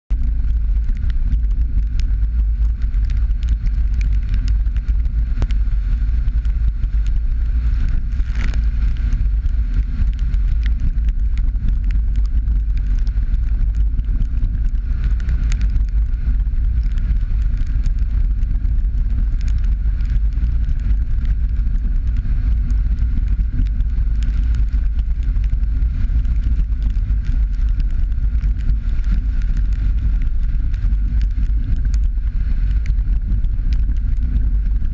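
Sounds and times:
small ticks: 0:00.1 - 0:34.9
tyre and road noise: 0:00.1 - 0:34.9.

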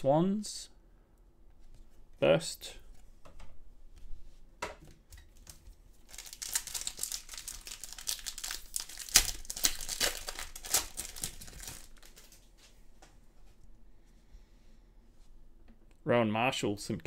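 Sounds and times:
foil wrapper tearing and crinkling: 0:05.4 - 0:12.4.

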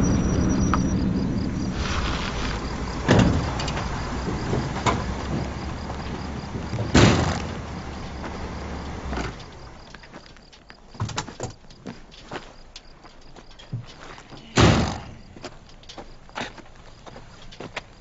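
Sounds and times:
doors thumping: 0:00.0 - 0:09.8, 0:13.7 - 0:15.5
vehicle engine humming: 0:00.0 - 0:11.8, 0:13.2 - 0:18.0.

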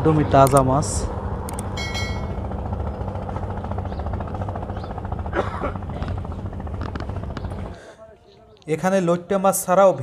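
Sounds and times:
engine running: 0:00.0 - 0:07.8.

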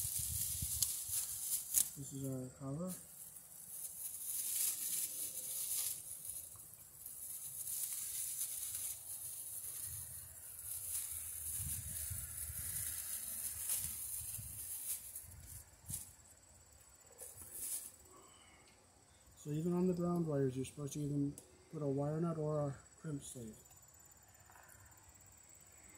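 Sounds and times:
plastic bag crinkling: 0:00.0 - 0:02.0, 0:02.8 - 0:16.0.

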